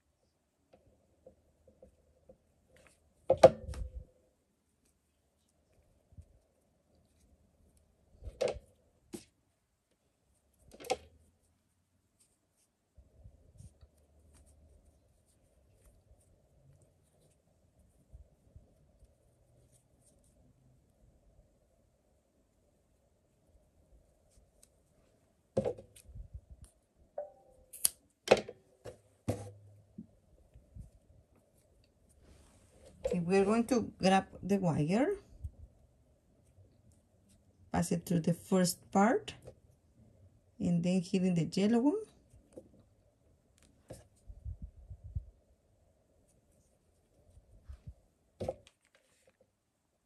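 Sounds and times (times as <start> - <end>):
scissors snipping yarn: 27.7 - 28.0.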